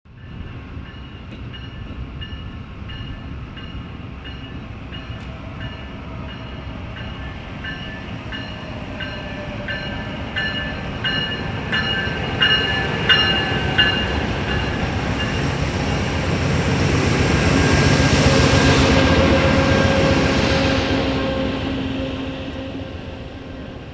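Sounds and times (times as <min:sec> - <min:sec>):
rumble of passing train: 0:00.1 - 0:23.9
locomotive bell ringing: 0:00.2 - 0:15.6.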